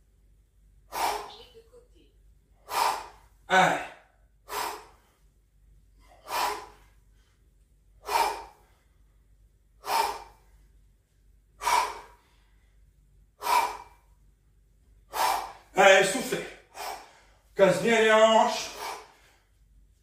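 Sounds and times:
man breathing out hard: 0.9 - 1.3, 2.6 - 5.2, 6.0 - 7.1, 8.0 - 9.1, 9.8 - 10.6, 11.6 - 12.7, 13.4 - 14.1, 15.1 - 15.7, 16.6 - 17.5, 18.5 - 19.5.

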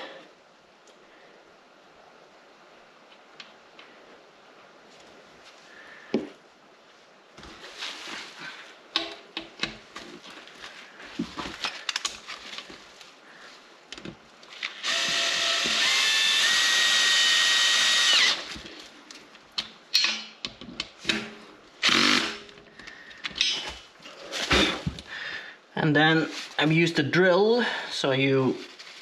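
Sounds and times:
clicks and knocks of handling tools: 8.9 - 10.3, 11.2 - 12.8, 18.6 - 21.4, 22.4 - 23.8
cordless drill driving bolt: 14.8 - 18.5.

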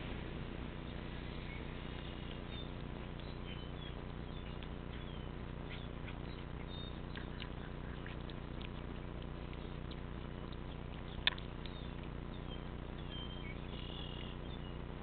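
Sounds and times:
steady low hum: 0.0 - 15.0
crunching clicks: 2.0 - 14.4.

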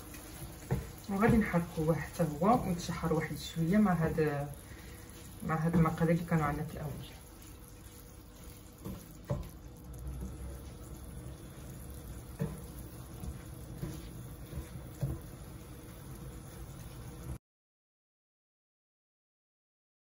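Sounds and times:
rice sizzling in a pan: 0.0 - 17.4
spatula knocking against a pan: 8.8 - 9.6, 12.3 - 15.4.

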